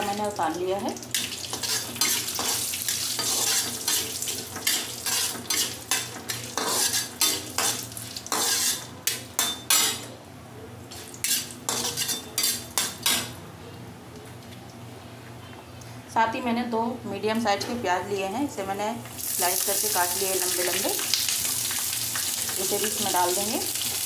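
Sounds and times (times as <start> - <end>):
food sizzling in hot oil: 0.0 - 8.9, 19.1 - 24.0
metal spatula scraping a pan: 1.5 - 10.0, 11.2 - 13.2.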